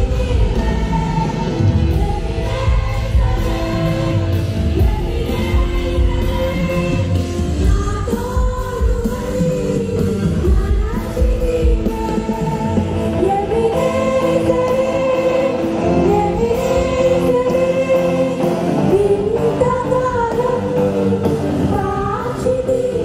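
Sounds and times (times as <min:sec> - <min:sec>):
congregation singing: 0:00.0 - 0:09.2, 0:11.5 - 0:19.8.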